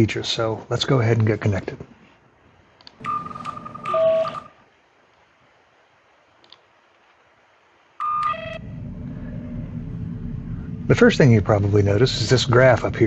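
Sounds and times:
high-then-low electronic beeps: 3.0 - 4.5
low hum: 8.0 - 13.0.

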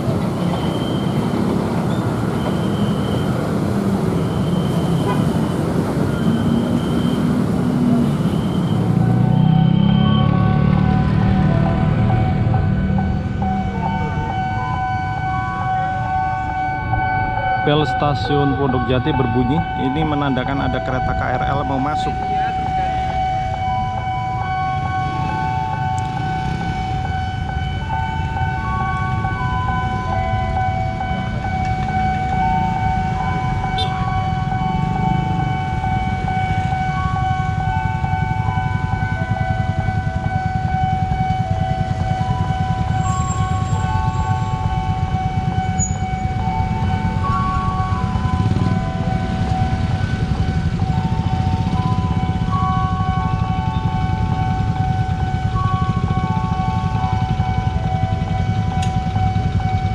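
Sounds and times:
low rumble of idling traffic: 10.7 - 59.9
station bell chime melody: 45.7 - 50.4.

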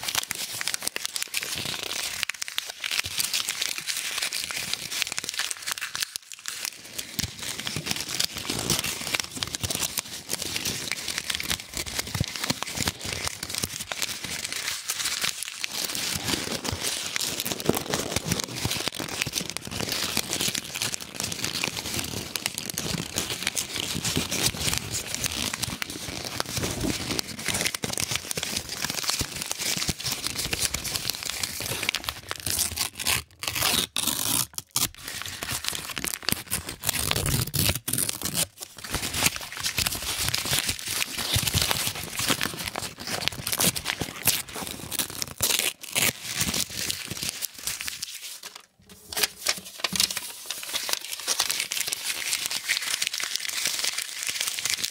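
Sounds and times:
paper banknotes crinkling: 35.1 - 54.9.

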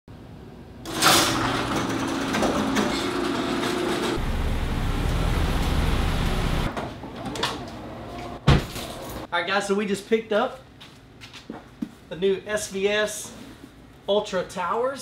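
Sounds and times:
garage door hum and rattle: 0.8 - 9.3
garage door opener clank: 0.9 - 7.7
car engine rumble: 4.2 - 6.7.

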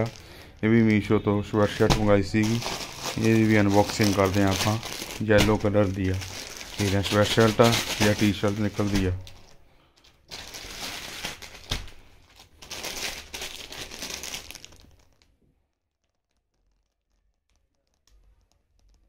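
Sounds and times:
plastic bags crinkling: 0.0 - 15.4
faint ticks: 16.2 - 19.0.

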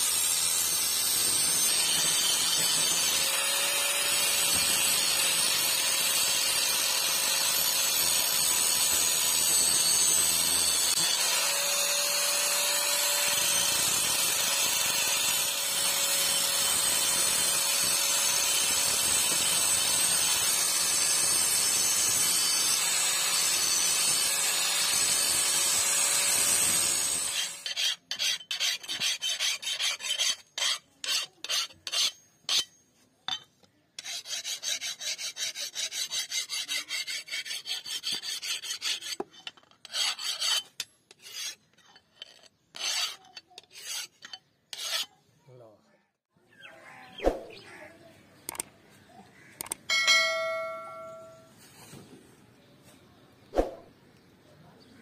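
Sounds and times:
angle grinder grinding steel: 0.0 - 45.2
hand file rasping on blade: 23.3 - 32.8, 34.0 - 45.2.

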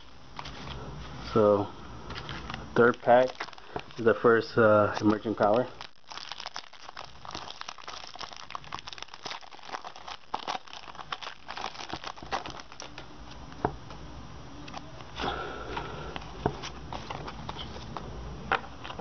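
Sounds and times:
foil wrapper crinkling: 2.1 - 13.0.

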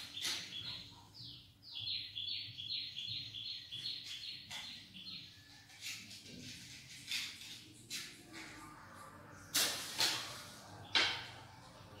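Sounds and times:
bird chirping: 0.0 - 5.8.

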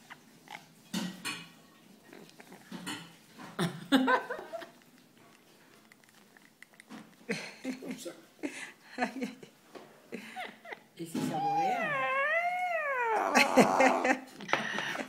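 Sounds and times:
parrot voice-like sound: 11.3 - 14.2.

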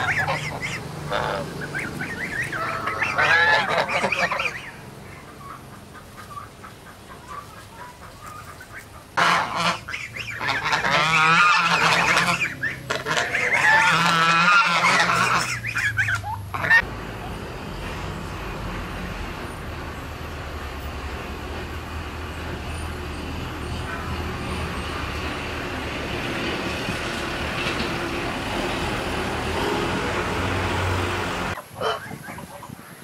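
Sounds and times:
geese honking: 0.0 - 16.9, 29.4 - 32.8.

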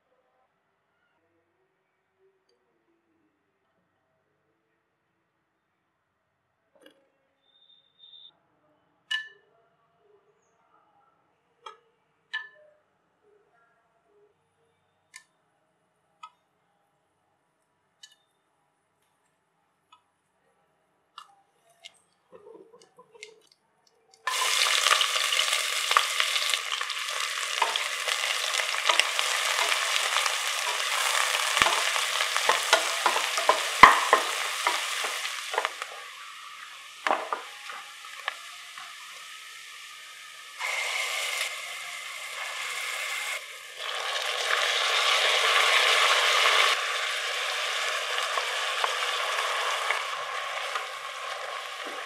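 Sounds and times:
onions sizzling in hot oil: 24.3 - 52.0
wooden spatula stirring: 25.9 - 36.0.

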